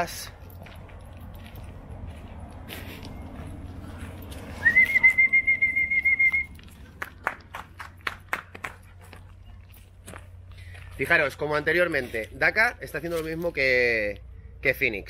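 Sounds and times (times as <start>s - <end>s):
person whistling: 4.5s - 6.6s.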